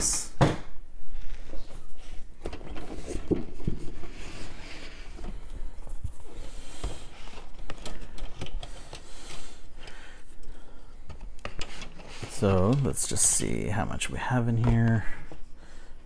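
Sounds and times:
small clicks and knocks: 6.8 - 13.0.

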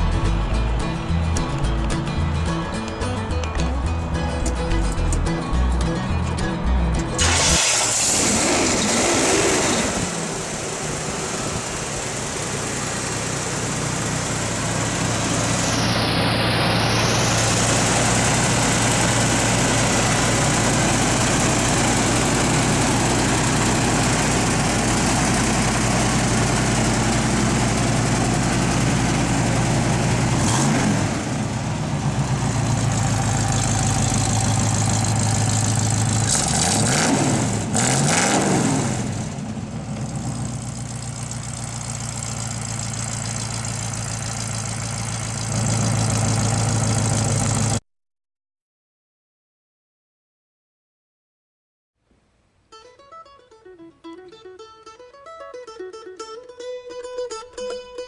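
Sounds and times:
car engine idling and revving: 3.4 - 47.8.

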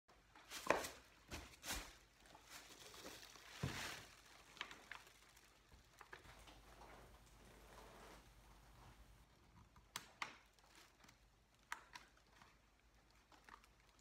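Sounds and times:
plastic wrapping crinkling: 0.2 - 14.0
cardboard box rustling and knocking: 0.6 - 4.2.

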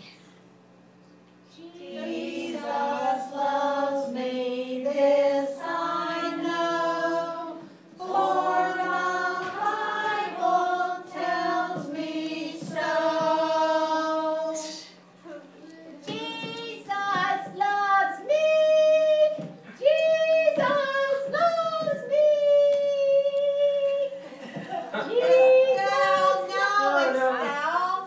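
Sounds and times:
group of voices singing: 1.6 - 14.7.

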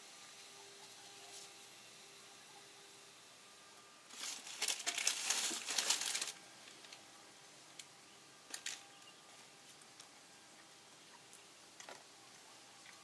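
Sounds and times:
bag crinkling rustle: 4.1 - 7.0, 8.5 - 8.9.

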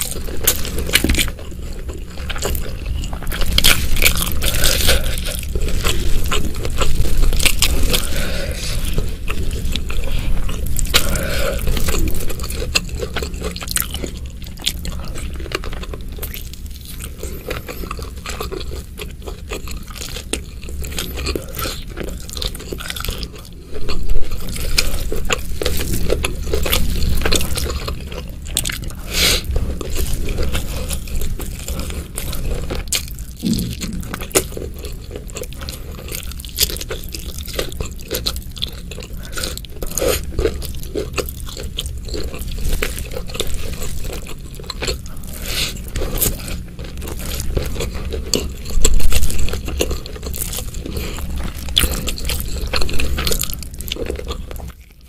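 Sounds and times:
chewing and crunching: 0.0 - 55.0
wet mouth sounds: 26.6 - 55.0.

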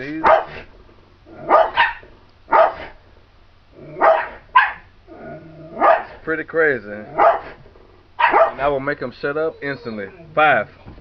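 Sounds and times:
dog barking: 0.2 - 0.7, 1.4 - 3.0, 4.0 - 4.9, 5.8 - 6.2, 7.1 - 7.6, 8.2 - 8.7.

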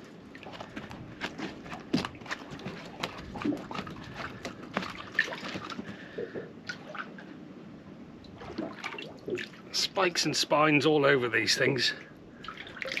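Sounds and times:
water splashing and dripping: 0.3 - 7.3, 8.2 - 9.7, 12.4 - 13.0.

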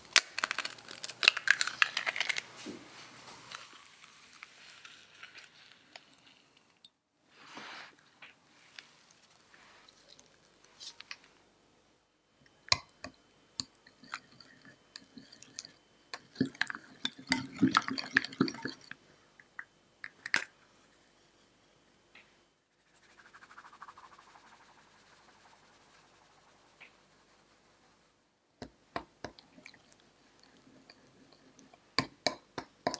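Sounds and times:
flour sifting hiss: 2.4 - 6.6, 7.3 - 11.3, 22.7 - 28.3.

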